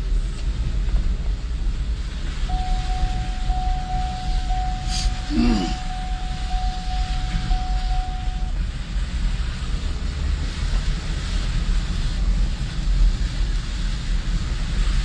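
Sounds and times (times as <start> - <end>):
car engine and tyres rumbling: 0.0 - 15.0
thin steady tone: 2.5 - 8.6
tyres hissing on wet road: 8.5 - 15.0.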